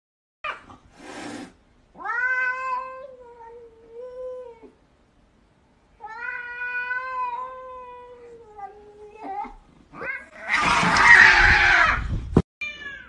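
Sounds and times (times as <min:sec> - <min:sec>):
cat meowing: 0:02.0 - 0:04.7, 0:06.0 - 0:12.0, 0:12.6 - 0:13.0.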